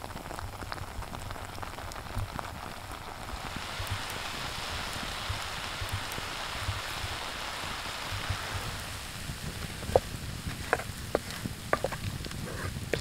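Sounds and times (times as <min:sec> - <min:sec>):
sauce sizzling and bubbling: 0:00.0 - 0:13.0
spatula stirring clicks and pops: 0:08.0 - 0:13.0.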